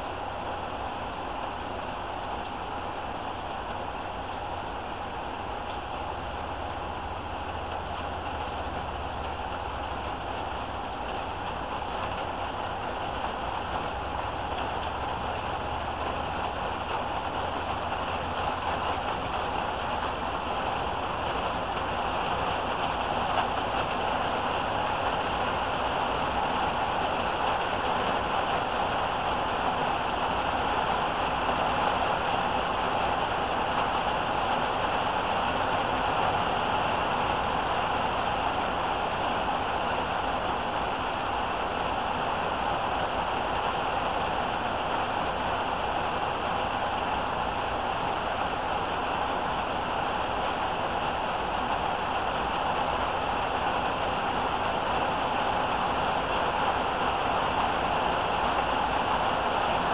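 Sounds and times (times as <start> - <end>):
heavy rain pouring: 0.0 - 59.9.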